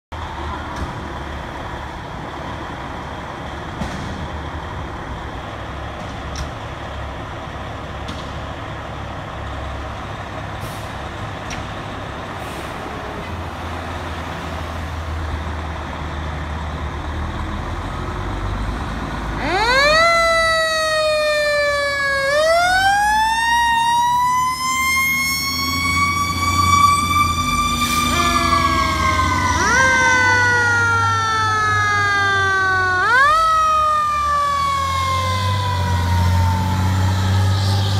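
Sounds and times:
diesel engines idling: 0.2 - 37.9
fire siren wailing: 19.2 - 37.9.

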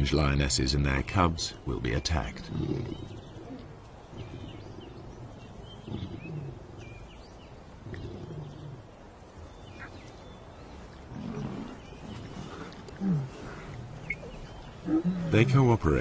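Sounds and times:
birds chirping faintly: 0.0 - 16.0
lion grunting: 2.0 - 9.0, 10.7 - 16.0.

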